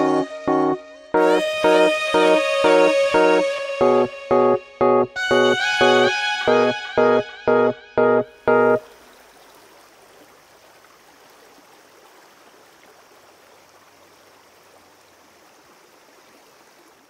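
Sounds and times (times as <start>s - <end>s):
stream babbling over pebbles: 8.8s - 17.0s.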